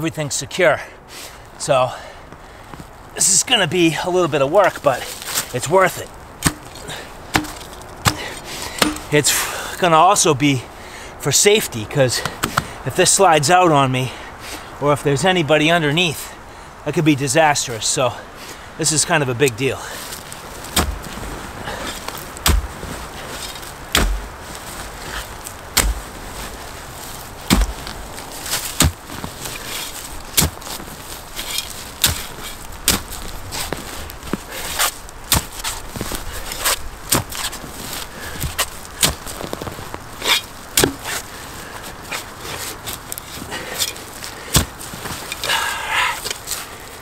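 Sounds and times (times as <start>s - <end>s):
dirt and leaves rustling: 0.0s - 47.0s
shovel blade chopping into soil: 6.4s - 9.1s, 20.7s - 24.4s, 25.0s - 26.2s, 27.5s - 30.7s, 31.4s - 33.2s, 34.7s - 35.8s, 40.3s - 41.2s.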